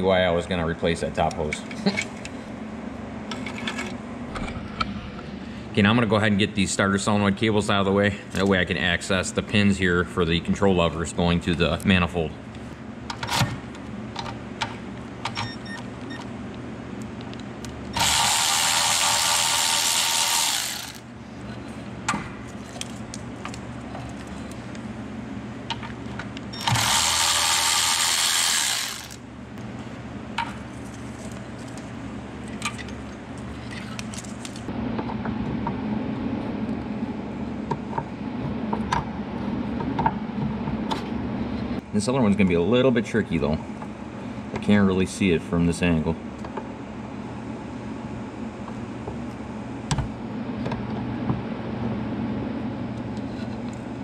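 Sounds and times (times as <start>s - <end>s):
steady low hum: 0.0s - 54.0s
electric ratchet spinning: 17.9s - 21.1s, 26.6s - 29.2s.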